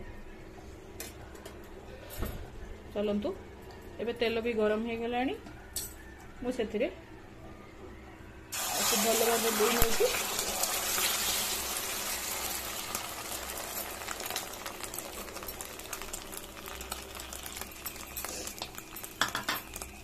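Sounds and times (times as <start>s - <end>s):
eggs sizzling in hot oil: 8.5s - 20.0s.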